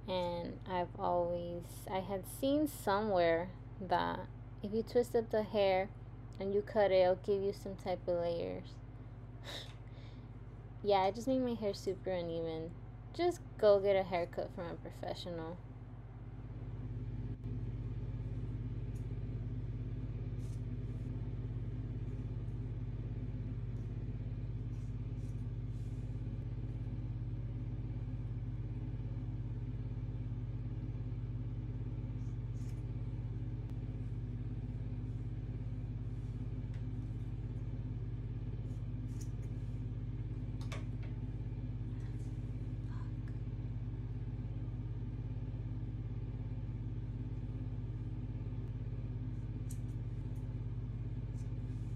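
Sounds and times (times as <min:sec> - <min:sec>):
low hum: 0:00.0 - 0:51.9
scissors snipping hair: 0:49.6 - 0:50.5.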